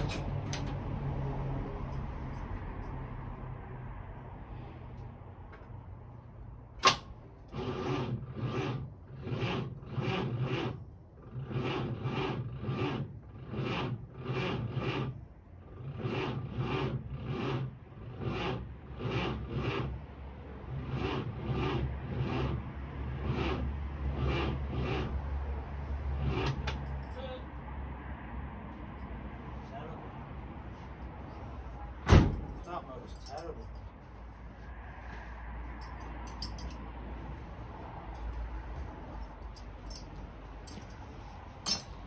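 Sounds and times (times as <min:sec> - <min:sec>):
engine cranking slowly: 0:06.9 - 0:25.4.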